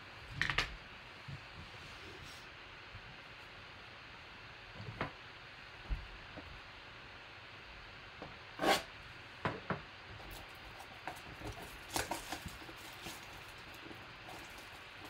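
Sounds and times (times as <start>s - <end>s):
knife scraping cardboard box: 8.6s - 8.9s.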